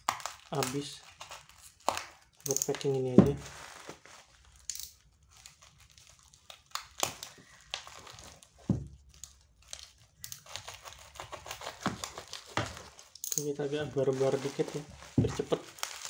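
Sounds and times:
plastic wrapping crinkling: 0:00.0 - 0:16.0
knife cutting packing tape: 0:09.1 - 0:13.6.

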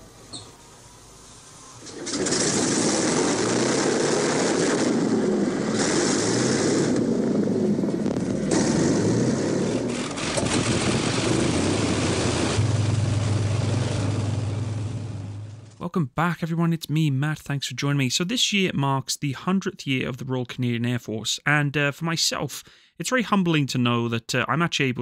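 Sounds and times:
piston aircraft engines running: 0:01.8 - 0:15.8
propeller noise: 0:01.8 - 0:15.8.

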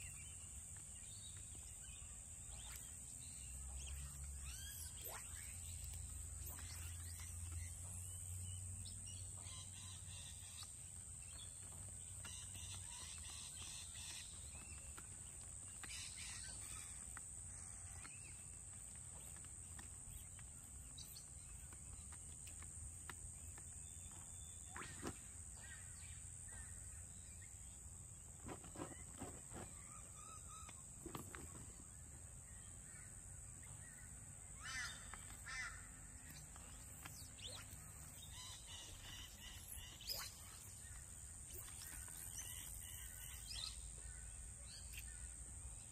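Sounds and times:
birds calling: 0:00.0 - 0:22.6, 0:32.5 - 0:45.9.

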